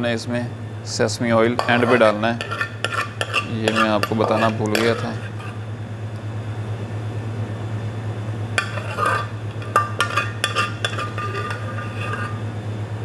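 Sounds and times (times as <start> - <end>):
low kitchen hum: 0.0 - 13.0
metal utensils clinking on a plate: 1.6 - 5.4, 8.6 - 12.4.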